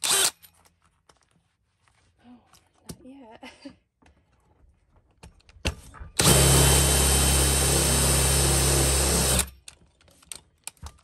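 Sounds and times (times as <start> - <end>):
drill boring into metal: 0.0 - 0.3, 6.2 - 9.5
drill click: 6.2 - 9.5.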